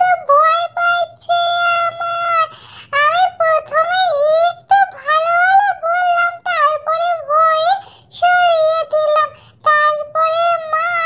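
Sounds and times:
high-pitched childlike singing: 0:00.0 - 0:11.0.

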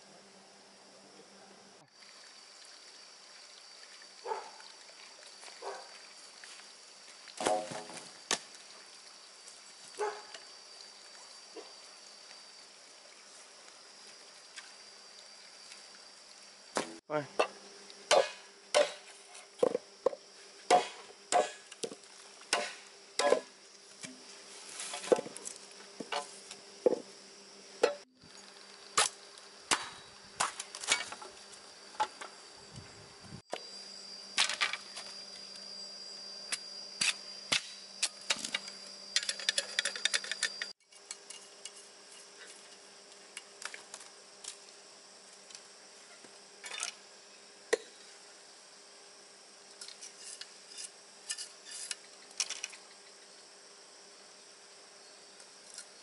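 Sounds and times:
insect buzz: 0:00.0 - 0:56.0
bamboo chopped with a blade: 0:07.4 - 0:08.5, 0:16.8 - 0:19.8, 0:20.7 - 0:24.2, 0:29.0 - 0:31.1, 0:37.0 - 0:38.2.

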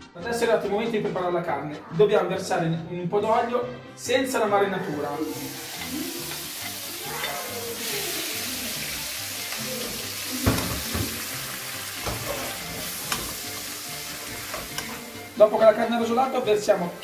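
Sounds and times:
meat sizzling in oil: 0:04.9 - 0:17.0.

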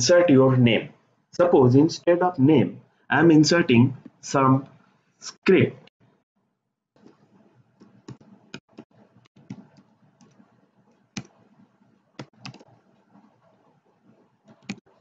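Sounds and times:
keyboard keys clicking: 0:07.8 - 0:10.4, 0:12.2 - 0:12.8, 0:14.5 - 0:15.0.

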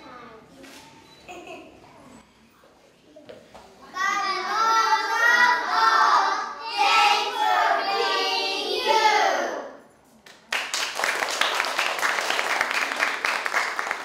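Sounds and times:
children singing: 0:04.0 - 0:09.7
audience applause: 0:10.5 - 0:14.0.

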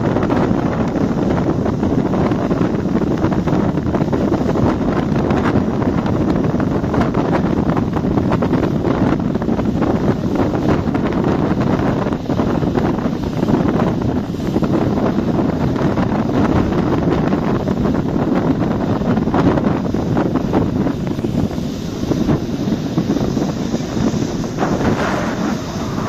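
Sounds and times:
wind buffeting microphone: 0:00.0 - 0:26.0
ferry running noise: 0:17.2 - 0:26.0.

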